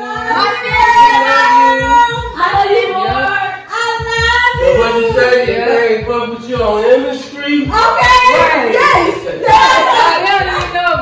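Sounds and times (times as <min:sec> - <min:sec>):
woman singing: 0:00.0 - 0:05.9
steady beat: 0:00.0 - 0:11.0.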